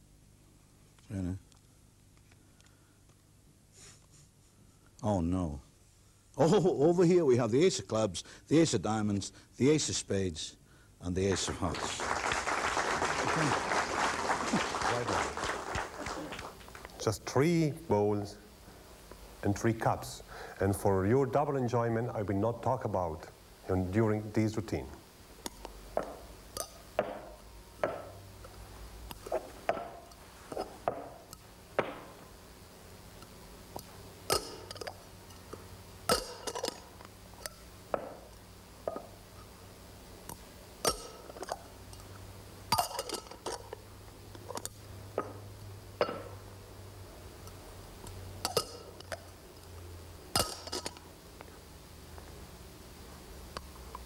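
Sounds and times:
metal cups clinking: 26.0 - 28.2, 34.3 - 38.3, 40.8 - 42.1, 42.7 - 43.8, 46.0 - 46.4, 48.4 - 49.2, 50.4 - 51.0.

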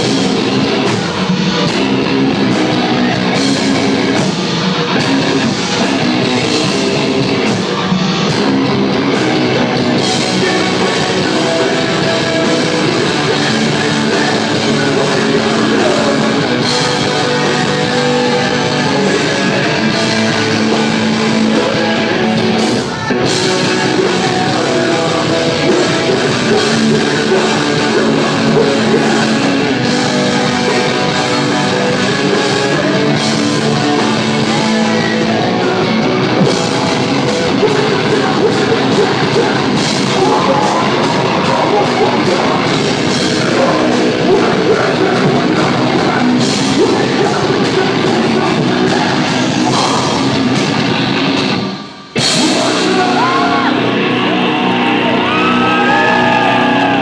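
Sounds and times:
bass guitar: 0.0 - 57.0
drum kit: 0.0 - 57.0
electric guitars: 0.0 - 57.0.

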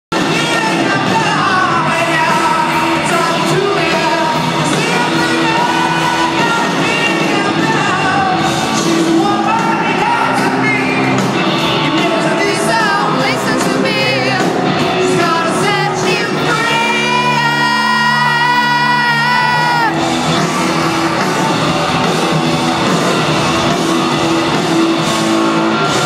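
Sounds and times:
drums: 0.1 - 26.0
electric guitars: 0.1 - 26.0
person singing: 0.2 - 20.0.

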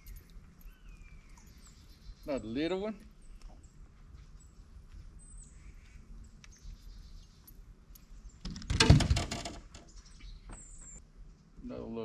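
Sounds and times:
faint bird chirps: 0.0 - 8.4.

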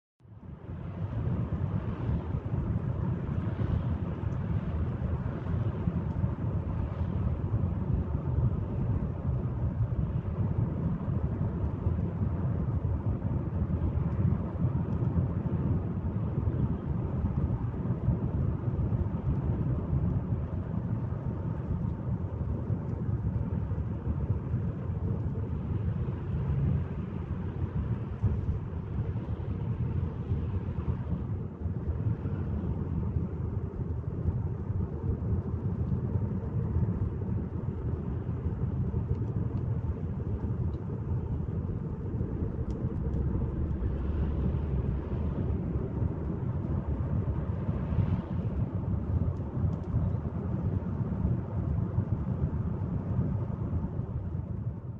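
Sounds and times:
engine and road noise rumble: 37.8 - 49.9.

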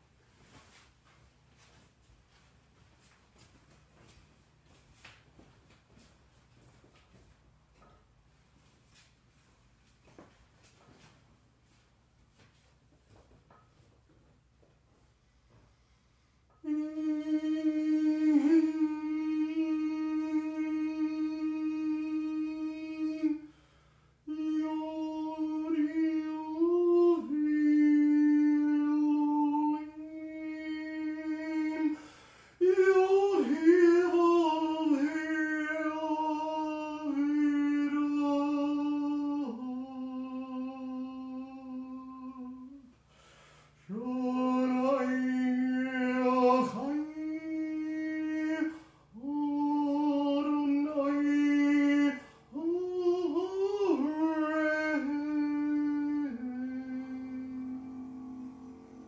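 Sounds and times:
man chanting: 16.6 - 23.5, 24.2 - 42.9, 43.8 - 59.0.

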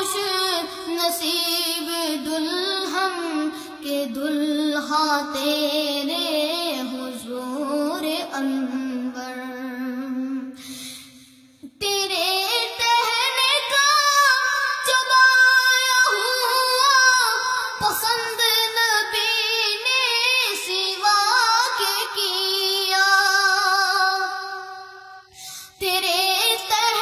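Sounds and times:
boy singing solo: 11.7 - 24.8, 25.8 - 27.0.

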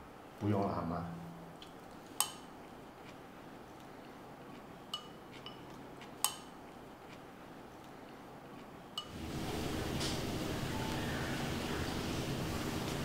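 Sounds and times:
chopsticks clinking ceramic bowls: 4.9 - 6.4.

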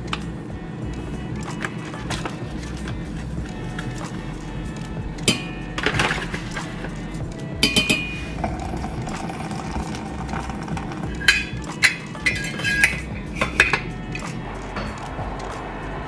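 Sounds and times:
lid clinking onto press: 7.6 - 13.9.

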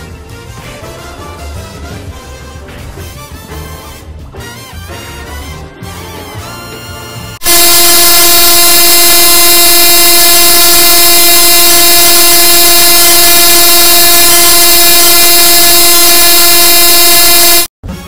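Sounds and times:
distorted horn-like electronic tone: 6.9 - 17.7.

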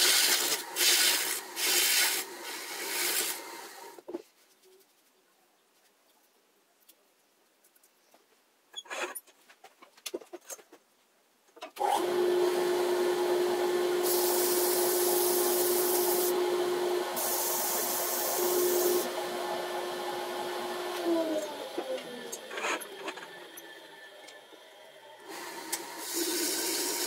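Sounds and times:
dust extraction vacuum running: 11.8 - 27.0.

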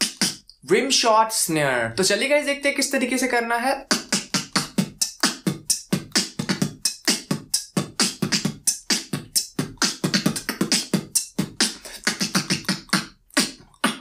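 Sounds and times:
beatbox percussion: 0.0 - 0.6, 3.8 - 14.0.

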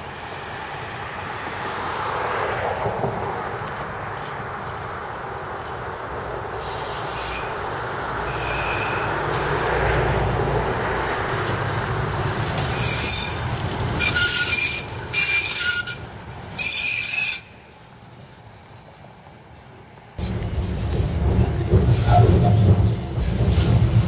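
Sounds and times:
tram wheels rumbling on rails: 0.0 - 24.0
high-pitched wheel squeal: 6.5 - 10.1, 10.8 - 24.0.

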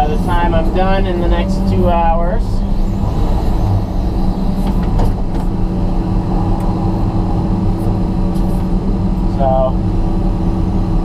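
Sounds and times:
excavator engine and hydraulics: 0.0 - 11.0.

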